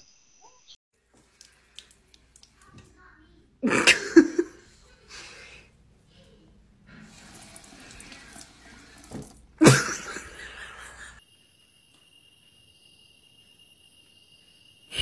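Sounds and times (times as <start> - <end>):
water trickling into sink: 1.0 - 3.0, 6.8 - 11.2.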